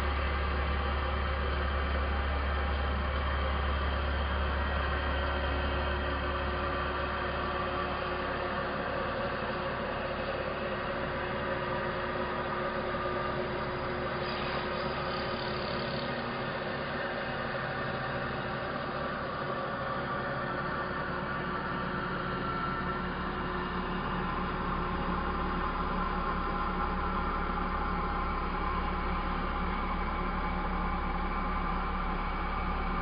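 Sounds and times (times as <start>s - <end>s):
router spindle motor drone: 11.0s - 23.1s.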